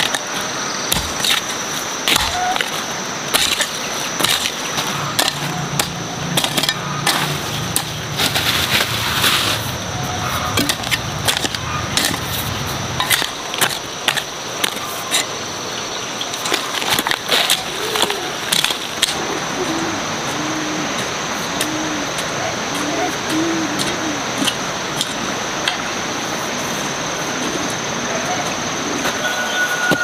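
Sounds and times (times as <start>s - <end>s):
clods scraping and tumbling: 0.1s - 15.3s
hoe chopping stony soil: 0.9s - 8.5s, 10.5s - 15.3s.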